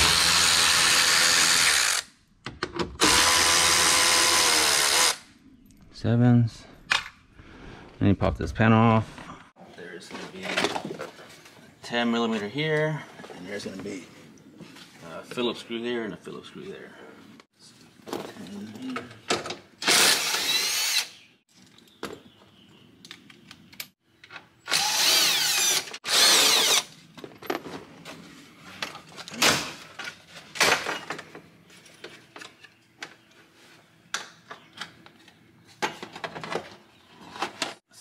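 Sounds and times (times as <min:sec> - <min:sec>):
cordless impact driver spinning: 0:24.7 - 0:26.9.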